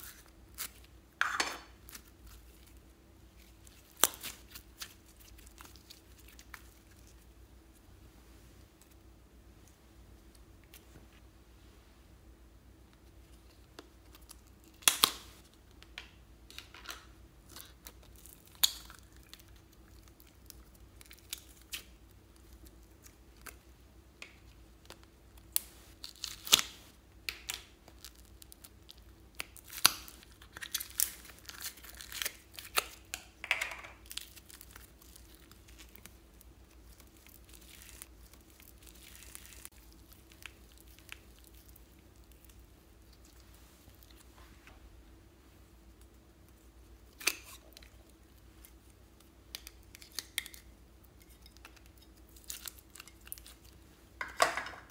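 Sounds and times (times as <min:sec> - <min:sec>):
faint steady hum: 0:00.0 - 0:54.9
plastic crinkling: 0:33.8 - 0:44.3.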